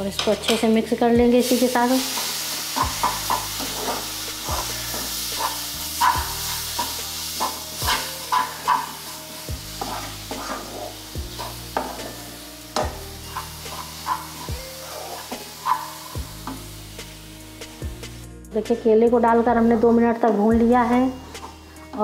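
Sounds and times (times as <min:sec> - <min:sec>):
light sizzle: 0:00.0 - 0:22.0
wooden spatula scraping pan: 0:02.2 - 0:09.1, 0:09.7 - 0:12.2, 0:12.9 - 0:16.2.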